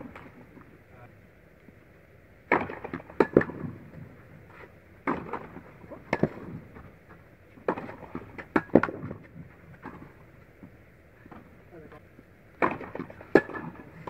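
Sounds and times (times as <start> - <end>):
racket hitting tennis ball: 5.0 - 6.5, 12.6 - 13.9
tennis ball bouncing: 5.0 - 6.5, 12.6 - 13.8.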